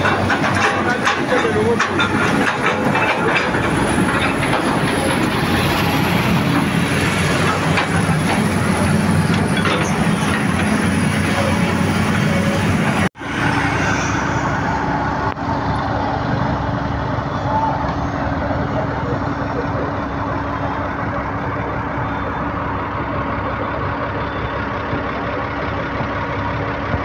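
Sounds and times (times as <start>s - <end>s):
machinery clanks: 0.0s - 14.4s
heavy diesel machinery rumble: 0.0s - 27.0s.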